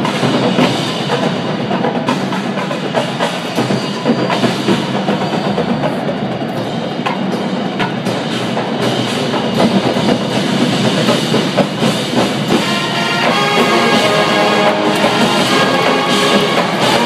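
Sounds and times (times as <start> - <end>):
marching drums and percussion: 0.0 - 17.0
wind instruments holding chords: 12.5 - 17.0.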